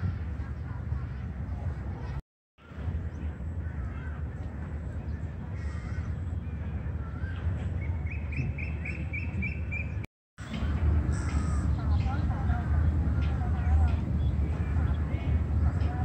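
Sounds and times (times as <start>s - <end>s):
steady low rumble: 0.0s - 16.0s
birds calling: 5.1s - 16.0s.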